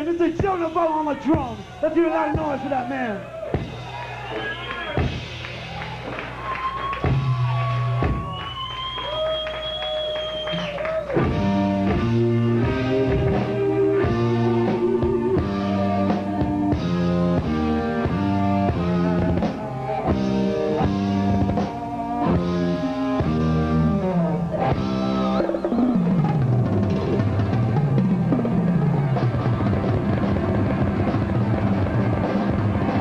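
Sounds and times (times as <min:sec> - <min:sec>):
drums: 0:00.0 - 0:33.0
electric guitar run: 0:09.7 - 0:33.0.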